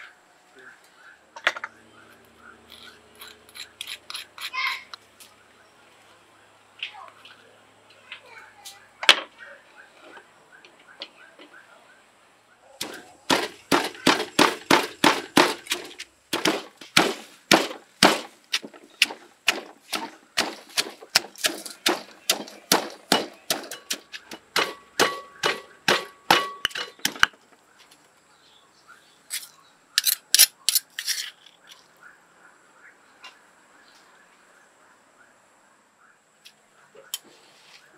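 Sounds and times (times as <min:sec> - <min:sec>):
stone pestle pounding in mortar: 0:12.8 - 0:27.3.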